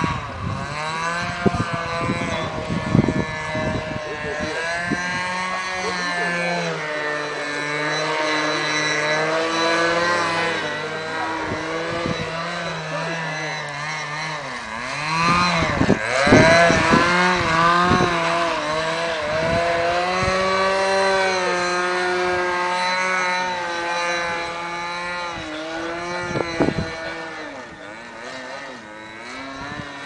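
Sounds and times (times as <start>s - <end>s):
model plane engine in flight: 0.0s - 30.0s.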